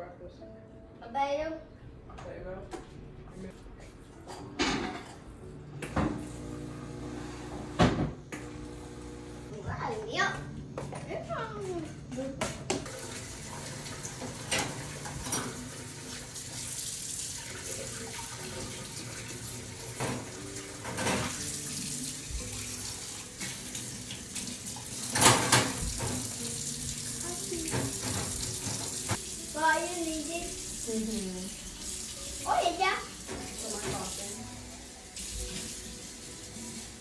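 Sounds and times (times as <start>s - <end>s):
cups and utensils clinking: 4.2s - 5.4s, 13.8s - 15.9s, 19.9s - 21.6s, 25.0s - 26.5s
faucet running into sink: 12.8s - 37.0s.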